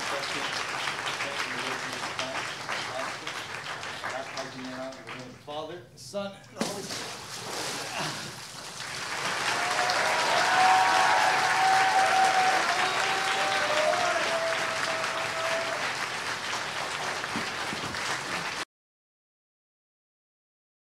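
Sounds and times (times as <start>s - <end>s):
people cheering: 0.0s - 5.2s, 7.9s - 18.6s
congregation applauding: 0.0s - 5.4s, 7.6s - 18.6s.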